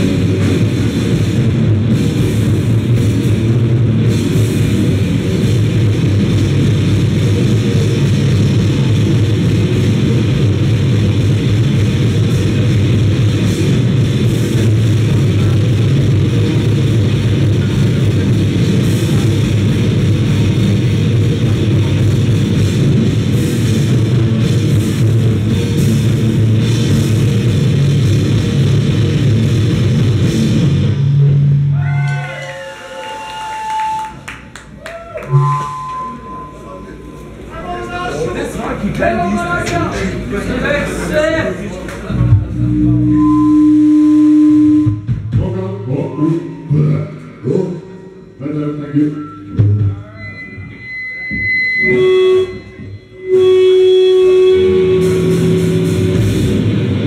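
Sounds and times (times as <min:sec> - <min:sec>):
pounding drums: 0:00.0 - 0:31.2
distorted guitar: 0:00.0 - 0:32.8, 0:35.2 - 0:57.0.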